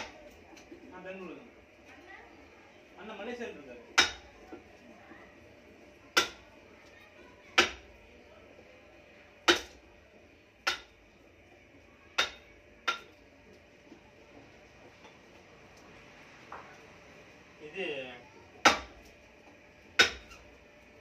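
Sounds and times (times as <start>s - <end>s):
mallet striking steel chisel: 20.0s - 20.4s.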